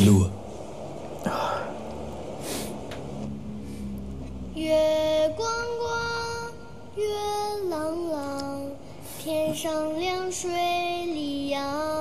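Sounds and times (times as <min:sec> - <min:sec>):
high voice singing slow melody: 0:04.5 - 0:12.0.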